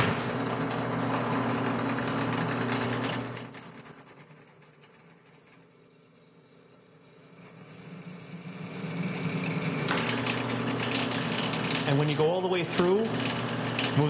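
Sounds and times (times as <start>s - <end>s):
drill press motor running: 0.0s - 14.0s
thin high whine: 3.4s - 10.6s
drill bit cutting steel: 3.4s - 11.8s.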